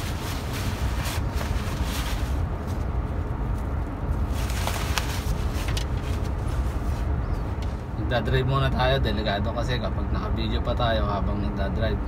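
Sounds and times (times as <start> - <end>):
sunshade rustling and crinkling: 0.0 - 8.0
low rumble inside car: 0.0 - 12.0.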